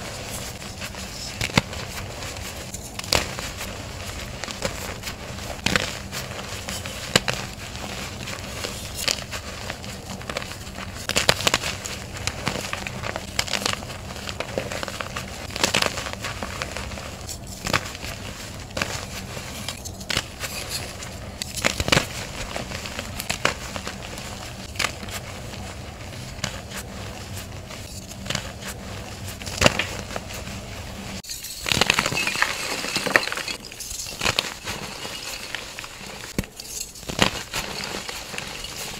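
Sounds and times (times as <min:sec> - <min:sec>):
dry powdery rustle: 0:00.0 - 0:38.9.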